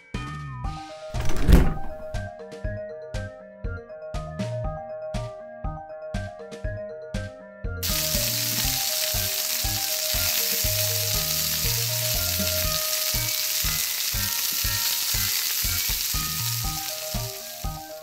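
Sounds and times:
background music with beat: 2.0 - 18.0
frying sizzle: 7.8 - 18.0.

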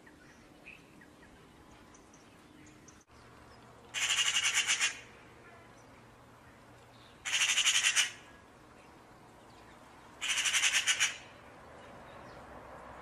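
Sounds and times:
magpie chattering: 3.9 - 5.1, 7.2 - 8.2, 10.2 - 11.3.

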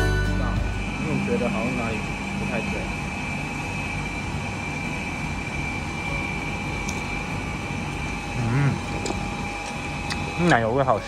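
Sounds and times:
faint high whine: 0.0 - 11.0
ventilation hum: 0.0 - 11.0.

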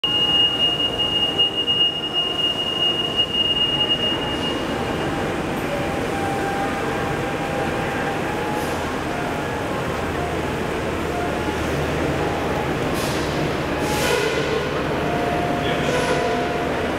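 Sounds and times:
train wheels squealing: 0.0 - 9.6.

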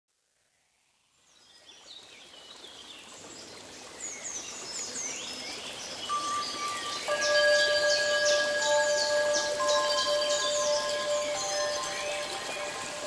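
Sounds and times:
birds chirping: 5.3 - 13.0
held musical tone: 6.1 - 13.0
steady rushing hiss: 6.1 - 13.0.

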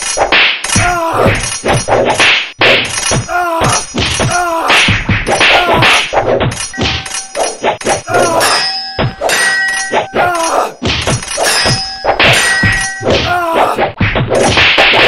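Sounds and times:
sword clashing hits: 0.4 - 15.0.

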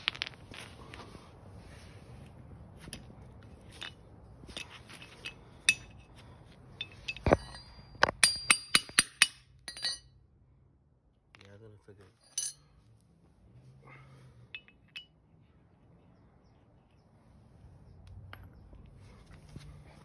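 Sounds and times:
hammer clinking on steel: 6.8 - 10.1, 12.2 - 12.7.

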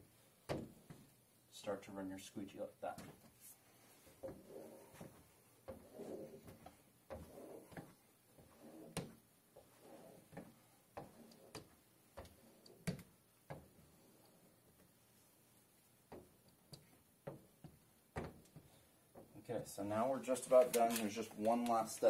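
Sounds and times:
squeegee rubbing on glass: 3.7 - 12.9.

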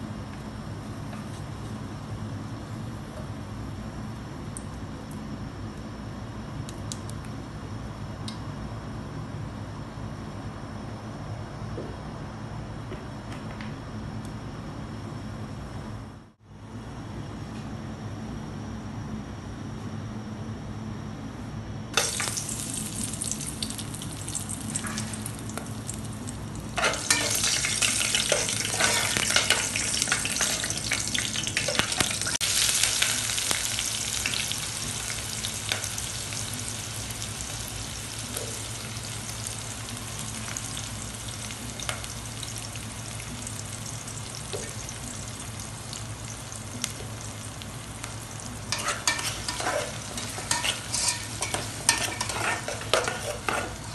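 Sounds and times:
steady low hum: 0.0 - 53.9
oil sizzling in pot: 22.0 - 53.9
stirring clicks and scrapes: 48.7 - 53.9.

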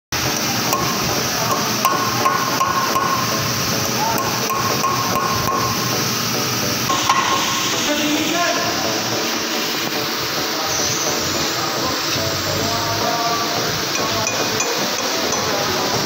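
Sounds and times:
hammer striking steel punch: 0.7 - 3.5, 4.1 - 5.9, 6.9 - 7.8.

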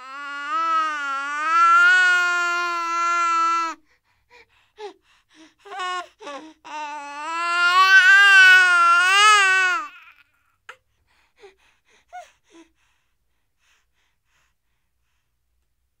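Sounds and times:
infant crying: 0.0 - 3.8, 5.6 - 10.4.

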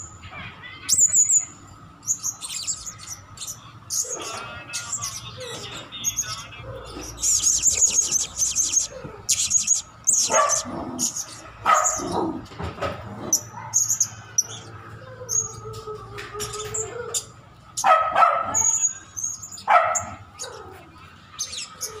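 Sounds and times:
parrot high-pitched chirps: 0.8 - 12.1, 16.4 - 22.0
parrot bark-like calls: 2.1 - 12.5, 13.3 - 22.0.

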